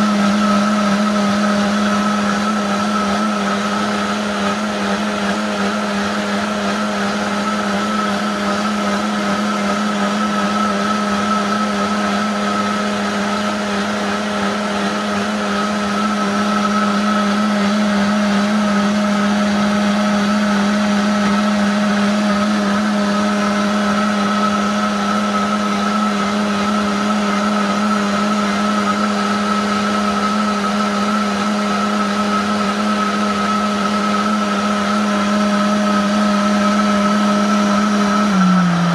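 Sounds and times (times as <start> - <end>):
blender motor humming and whining: 0.0 - 38.9.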